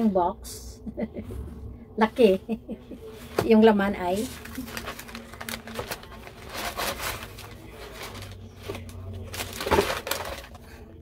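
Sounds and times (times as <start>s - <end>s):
packing paper crinkling and rustling: 4.0s - 10.9s.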